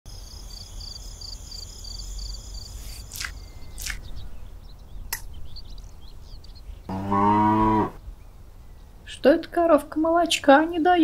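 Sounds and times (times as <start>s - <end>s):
crickets chirping: 0.1s - 4.2s.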